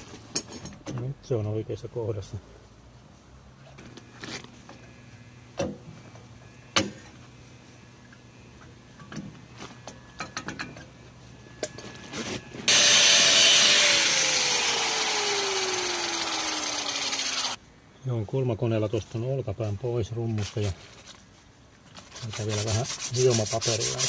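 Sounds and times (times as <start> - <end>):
angle grinder grinding metal: 12.7 - 17.6.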